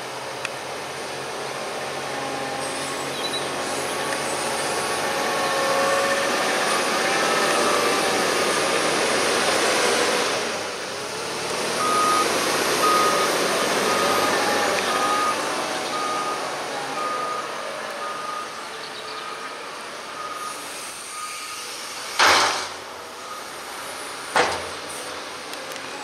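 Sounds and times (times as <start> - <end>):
diesel engine under load: 0.0 - 26.0
reversing alarm beeping: 11.8 - 18.6, 19.2 - 21.8, 23.2 - 24.3.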